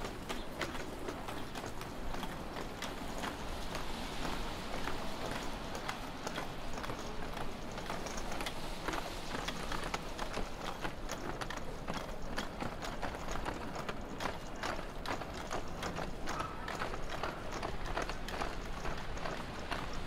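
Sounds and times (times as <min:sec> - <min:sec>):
city background noise: 0:00.0 - 0:20.0
footsteps on snowy sidewalk: 0:00.0 - 0:20.0.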